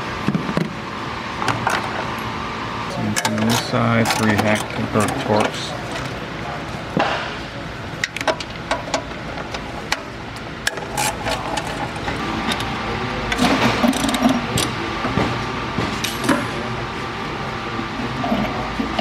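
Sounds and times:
steady background hum: 0.0s - 19.0s.

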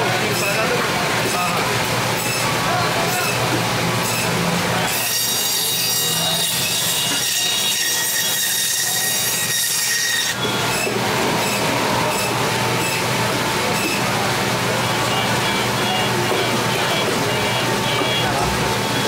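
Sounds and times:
band saw running: 0.0s - 19.0s
band saw metallic squeal: 4.0s - 4.3s, 4.9s - 13.0s.

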